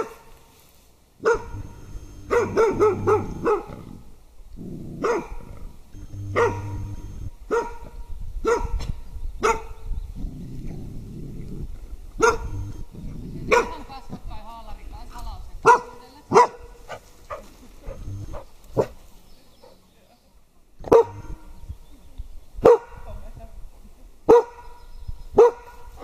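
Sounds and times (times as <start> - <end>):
dog barking: 1.2 - 3.9, 5.0 - 5.5, 6.2 - 6.8, 7.5 - 8.8, 9.4 - 9.8, 12.2 - 12.8, 13.5 - 13.8, 15.6 - 19.0, 20.8 - 21.4, 22.6 - 23.0, 24.3 - 24.6, 25.4 - 25.9.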